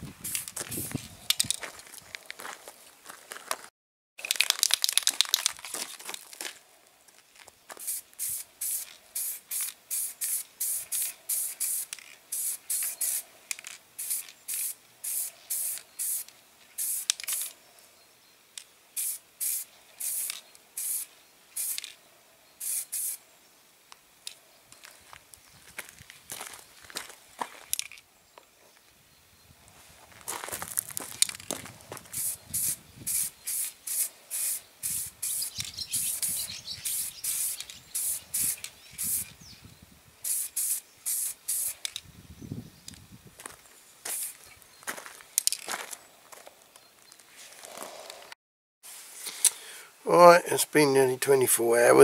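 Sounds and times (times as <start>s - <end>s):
aerosol spray hissing: 7.8s - 13.3s, 14.0s - 17.6s, 19.0s - 21.8s, 22.6s - 23.2s, 32.1s - 39.4s, 40.2s - 41.8s, 44.1s - 44.4s.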